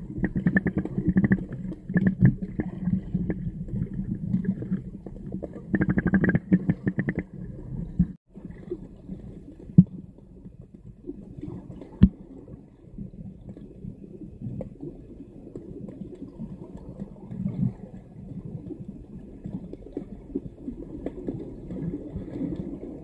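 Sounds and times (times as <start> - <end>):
muffled underwater water movement: 0.0 - 23.0
sharp clicks and crackles: 0.2 - 7.4.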